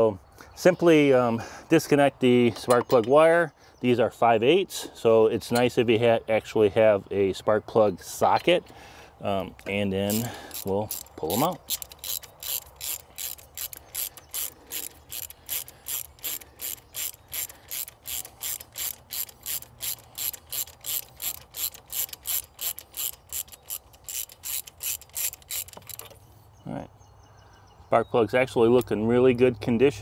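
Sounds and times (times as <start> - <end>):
hand ratchet clicking: 9.6 - 26.2.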